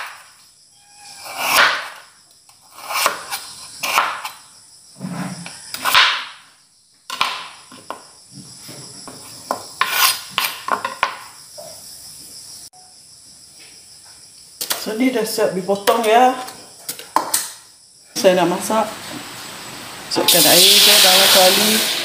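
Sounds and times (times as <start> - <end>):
knife chopping on wooden board: 2.8 - 4.3.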